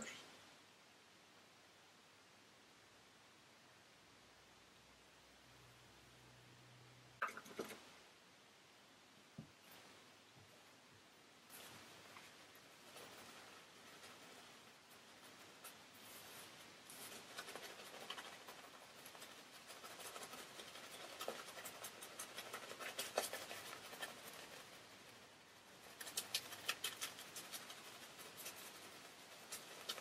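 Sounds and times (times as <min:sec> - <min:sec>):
shaving brush scratching on stubble: 0:15.0 - 0:25.1, 0:25.8 - 0:30.0.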